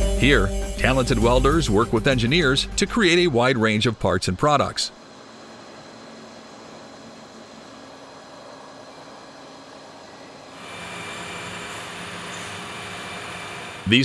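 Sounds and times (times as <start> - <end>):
faint machine hum: 0.2 - 14.0
waterjet cutting machine hissing: 3.0 - 14.0.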